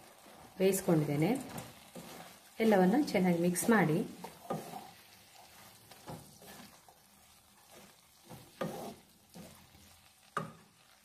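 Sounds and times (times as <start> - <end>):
spatula scraping rice in a pan: 0.0 - 11.0.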